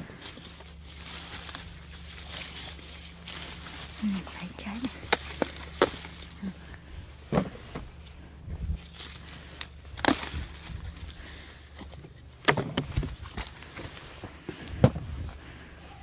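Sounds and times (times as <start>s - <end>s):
peppers snapping off plants: 4.8s - 6.4s, 8.9s - 11.1s, 11.7s - 13.6s.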